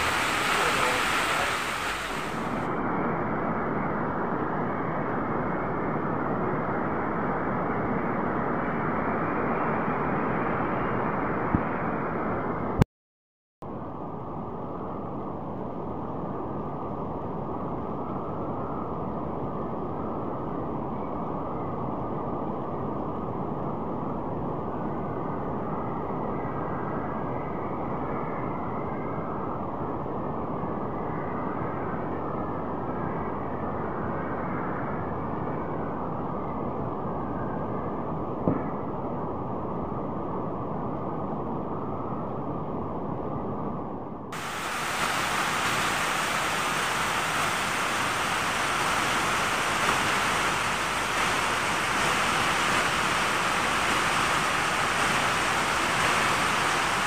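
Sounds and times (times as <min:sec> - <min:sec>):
heavy rain pouring: 0:00.0 - 0:02.7, 0:44.4 - 0:57.0.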